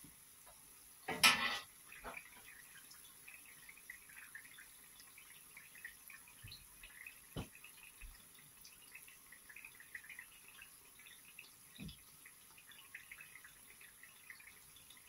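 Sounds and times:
hot oil sizzling and crackling: 0.0 - 4.2.

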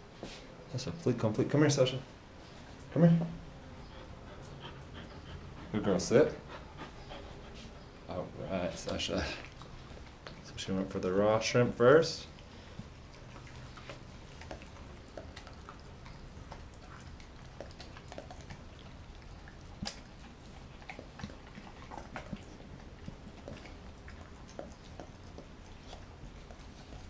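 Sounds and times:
dog chewing and licking: 8.6 - 27.0.

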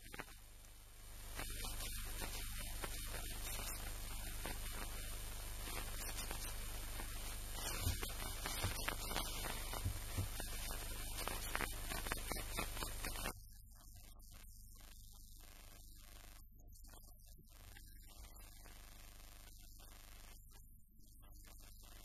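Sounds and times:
constant hiss: 0.0 - 22.0
soft low thumps: 9.6 - 10.4.

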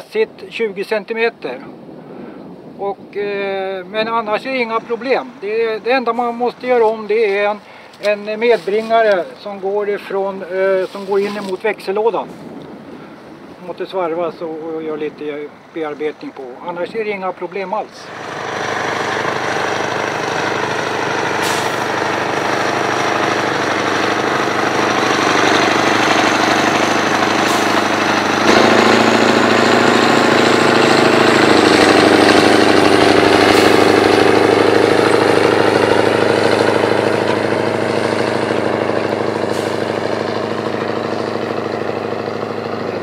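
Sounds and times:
tractor engine under heavy load: 18.0 - 43.0.

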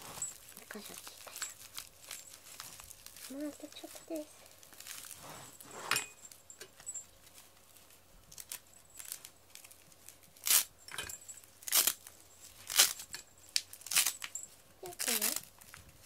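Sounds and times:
hook-and-loop fastener ripping: 10.4 - 10.7, 11.6 - 15.5.

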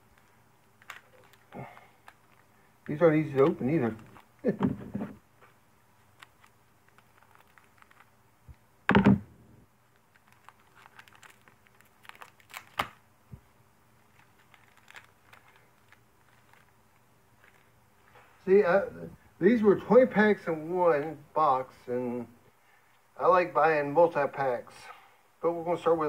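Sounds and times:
foil pack crinkling: 0.0 - 4.5, 6.0 - 8.2, 9.8 - 13.0, 14.0 - 17.8.

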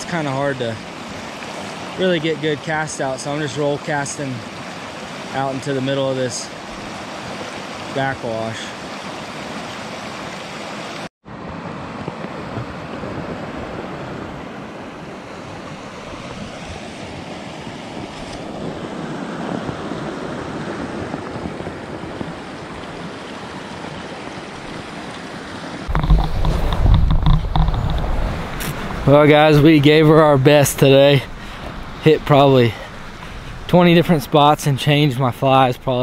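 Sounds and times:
wind buffeting microphone: 11.5 - 24.9, 25.9 - 34.3.

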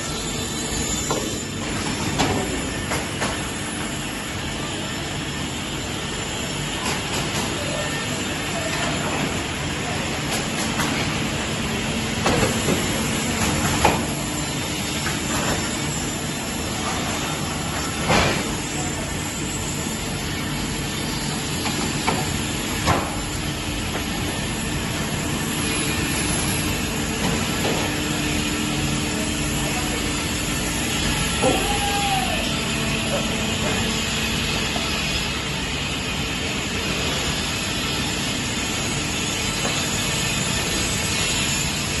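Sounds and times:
circular saw whirring hum: 9.2 - 42.0.

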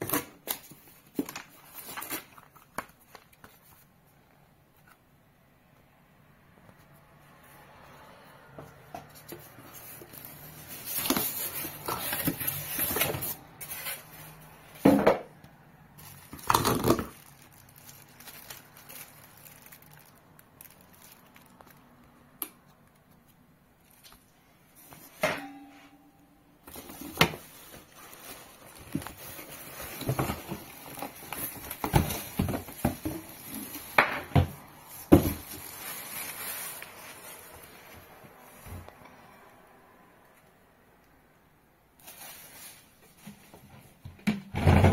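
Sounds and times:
plastic wrap rustling: 0.0 - 4.1, 9.1 - 14.9, 15.8 - 22.3, 26.6 - 38.9, 42.0 - 44.0.

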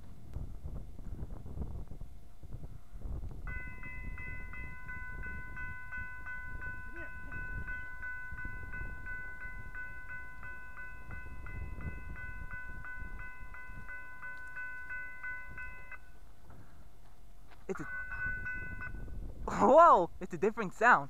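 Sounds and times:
railroad crossing bell ringing: 3.4 - 16.4, 17.7 - 19.4.

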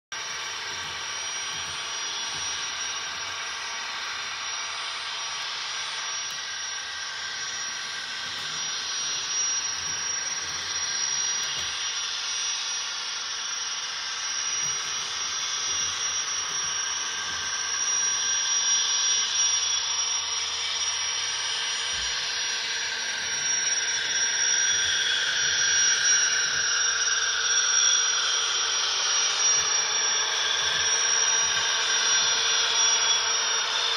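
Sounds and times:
model locomotive turbine hiss: 0.2 - 33.9.

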